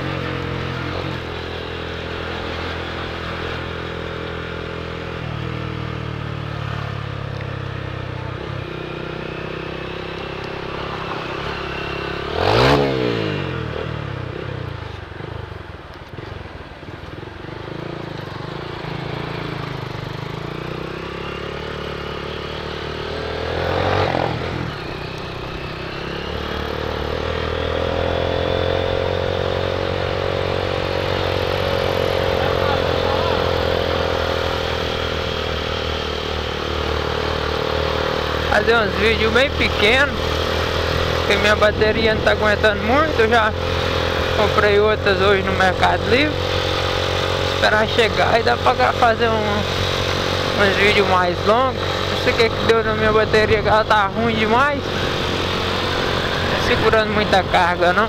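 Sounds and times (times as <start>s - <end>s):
small motorcycle engine revving: 0.0s - 15.4s, 17.5s - 58.0s
vehicle passing by: 18.4s - 58.0s.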